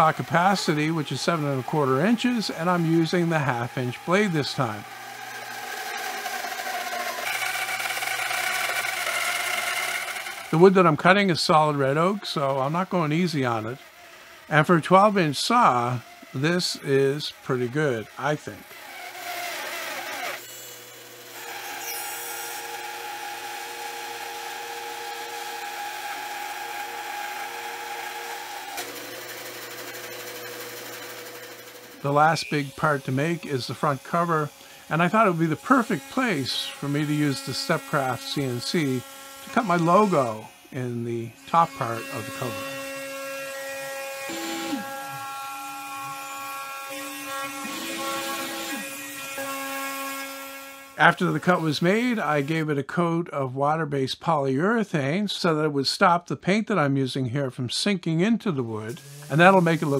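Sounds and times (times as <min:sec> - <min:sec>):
band saw motor humming: 0:00.0 - 0:52.6, 0:58.9 - 0:59.9
router spindle high whine: 0:00.0 - 0:52.6, 0:58.9 - 0:59.9
band saw cutting wood: 0:00.0 - 0:52.7, 0:58.9 - 0:59.9.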